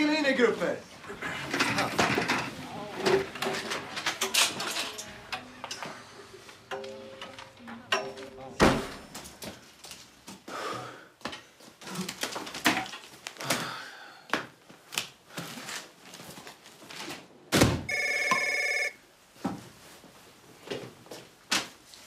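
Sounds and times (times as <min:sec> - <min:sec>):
telephone ringing: 0:17.9 - 0:19.0.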